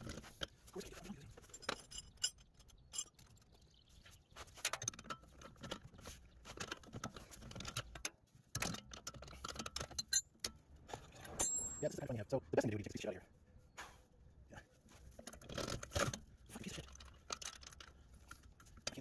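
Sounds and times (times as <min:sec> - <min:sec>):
metal hand tools clicking and scraping: 0:01.4 - 0:03.5.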